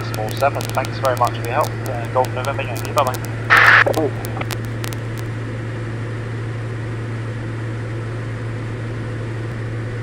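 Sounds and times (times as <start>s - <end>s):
faint clicks: 0.0s - 5.3s
aircraft engine drone: 0.0s - 10.0s.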